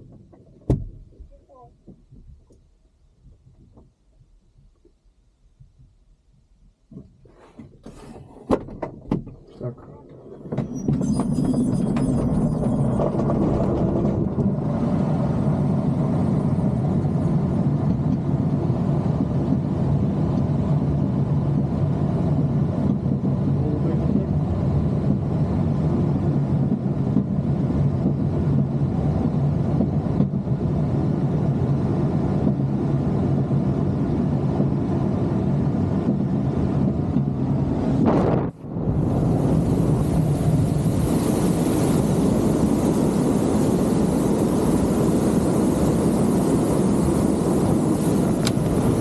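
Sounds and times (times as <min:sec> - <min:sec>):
air rushing in glider cockpit: 0:10.2 - 0:49.0.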